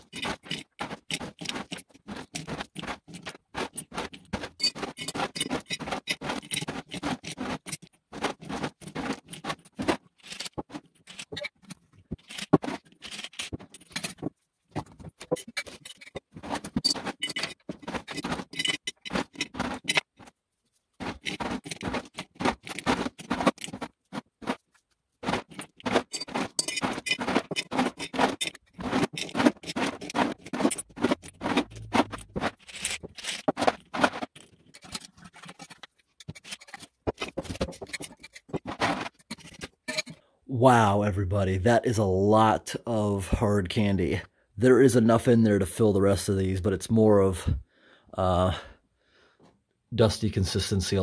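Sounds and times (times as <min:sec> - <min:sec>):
hard candies clattering into jars: 0:00.0 - 0:20.3, 0:25.2 - 0:40.2.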